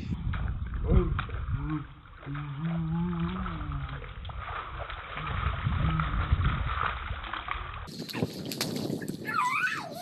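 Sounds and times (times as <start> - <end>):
bare feet splashing in water: 0.2 - 10.0
child's voice: 9.2 - 10.0.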